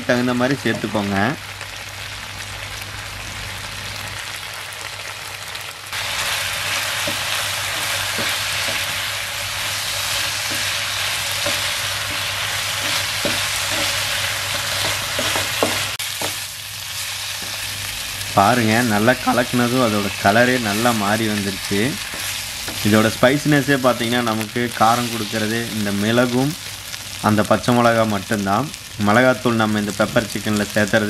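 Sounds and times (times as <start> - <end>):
chicken sizzling in oil: 0.0 - 31.0
wooden spatula scraping pan: 6.6 - 16.4.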